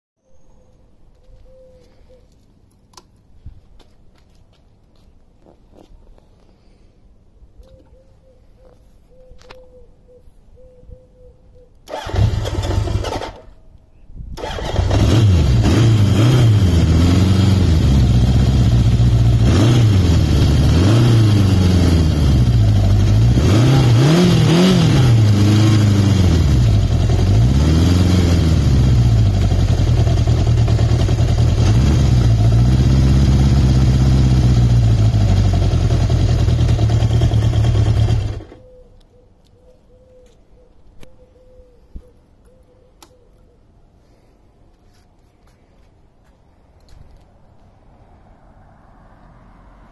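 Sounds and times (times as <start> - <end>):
motorcycle engine revving: 11.9 - 13.5, 14.4 - 38.6.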